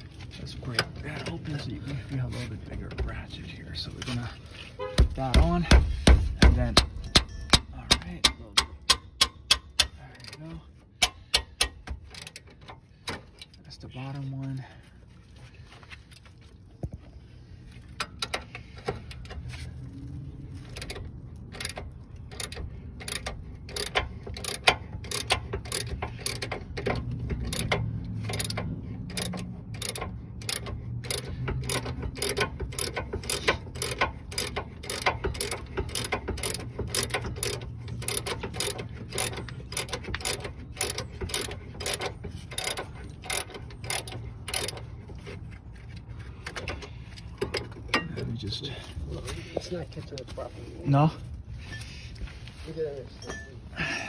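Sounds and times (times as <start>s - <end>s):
hand ratchet clicking: 6.8s - 13.6s, 20.6s - 45.3s.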